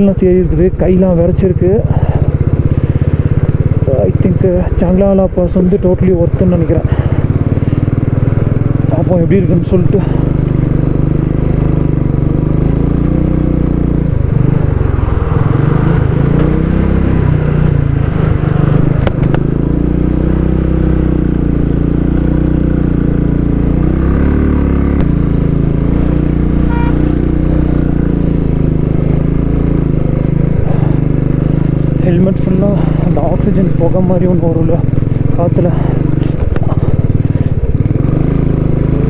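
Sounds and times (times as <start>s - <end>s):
motorcycle engine working hard: 0.0s - 39.0s
sharp knocks from rough road: 18.8s - 19.5s.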